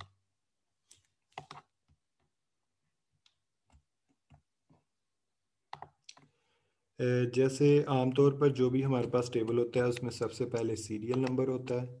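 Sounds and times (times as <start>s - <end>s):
faint mouse and keyboard clicks: 0.9s - 2.3s, 5.7s - 6.4s, 9.2s - 11.8s.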